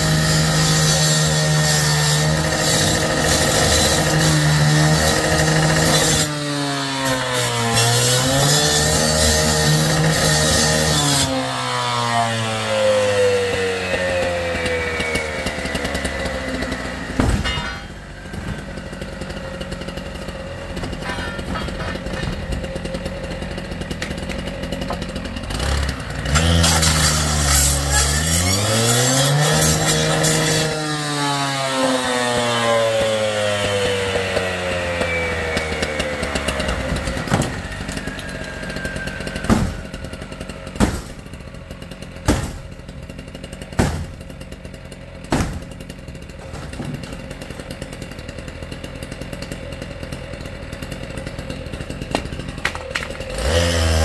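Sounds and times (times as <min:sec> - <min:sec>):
cut-off saw revving: 0:00.0 - 0:48.2, 0:51.2 - 0:54.0
axe striking metal door: 0:17.2 - 0:18.1, 0:39.4 - 0:40.0, 0:40.8 - 0:41.3, 0:42.2 - 0:42.8, 0:43.8 - 0:44.3, 0:45.3 - 0:45.8.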